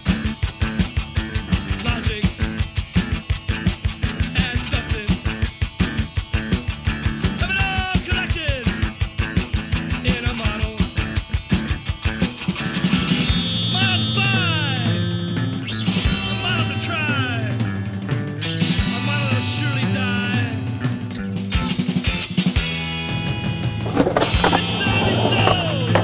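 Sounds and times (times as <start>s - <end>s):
fast rock music: 0.0s - 26.0s
guitar sliding notes: 23.8s - 26.0s.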